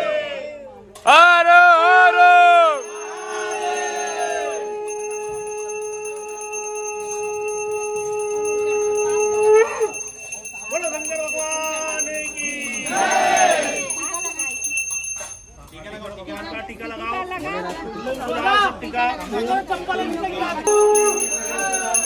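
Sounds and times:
bells ringing: 0:02.7 - 0:16.0, 0:20.7 - 0:22.0
long blown note: 0:02.8 - 0:10.1, 0:20.7 - 0:22.0.

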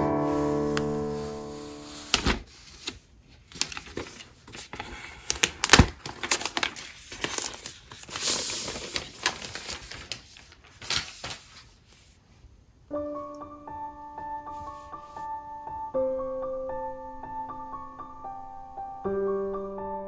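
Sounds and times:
plastic film crinkling: 0:00.3 - 0:11.9.

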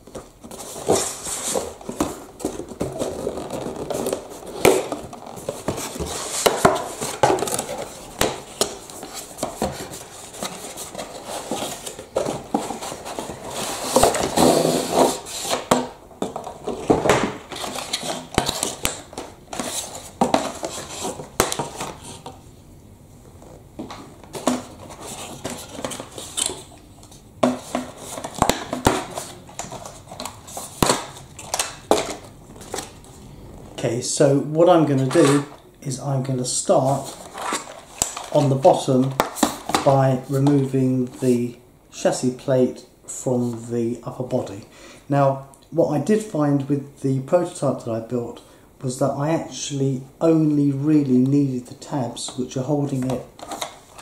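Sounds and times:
cardboard box rustling and scraping: 0:00.2 - 0:22.4, 0:24.3 - 0:26.6.

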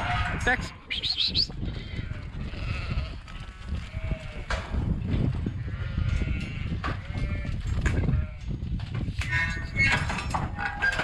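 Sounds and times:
sheep bleating: 0:01.8 - 0:03.2.

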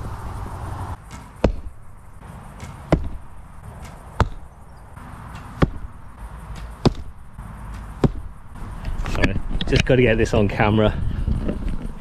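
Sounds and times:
arrows hitting targets: 0:01.0 - 0:09.9.

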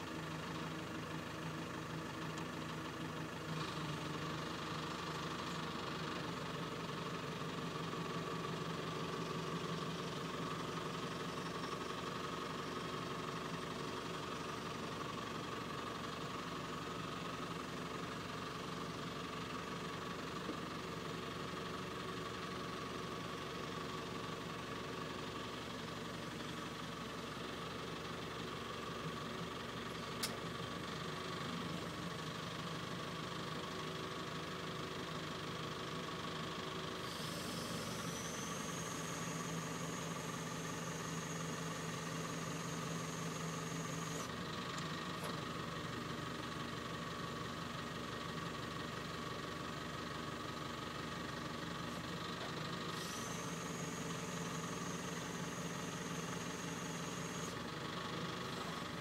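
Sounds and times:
diesel engine running: 0:00.0 - 0:59.0
sharp click: 0:30.2 - 0:30.4.

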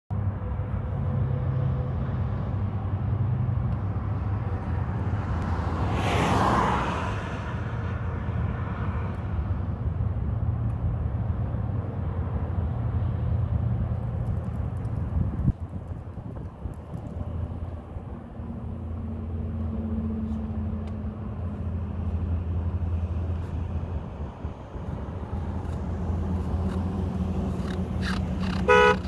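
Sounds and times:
car passing by: 0:00.8 - 0:09.8.

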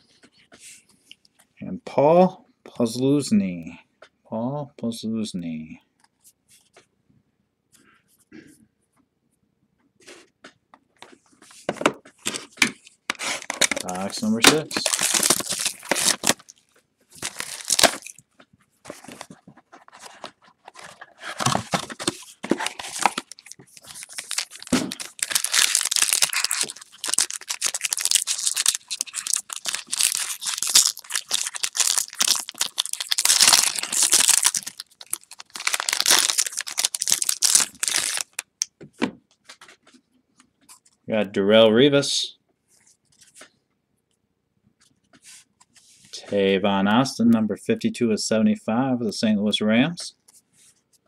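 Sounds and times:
plastic wrapping crinkling and tearing: 0:13.2 - 0:18.2, 0:18.9 - 0:38.6.

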